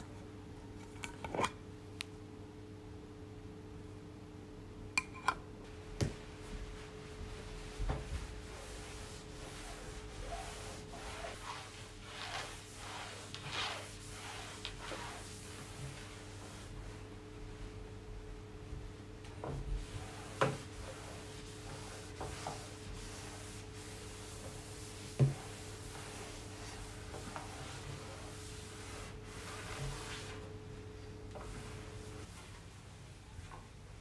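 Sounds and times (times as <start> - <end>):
cloth wiping wooden tabletop: 6.2 - 17.7, 19.5 - 30.5, 31.3 - 32.6.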